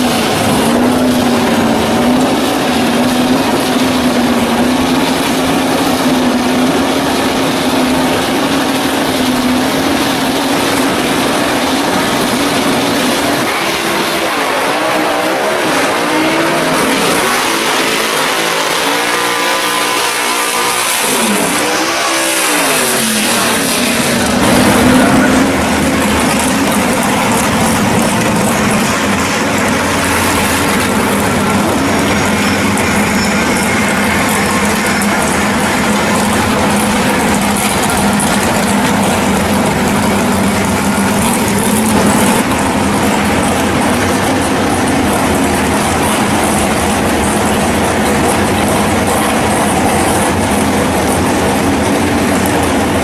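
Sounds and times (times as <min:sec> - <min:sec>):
car engine revving: 0:00.0 - 0:53.0.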